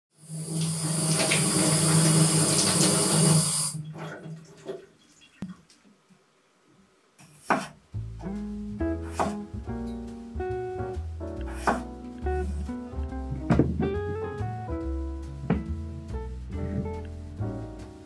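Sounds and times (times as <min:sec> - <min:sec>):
guitar music: 0:08.0 - 0:18.0.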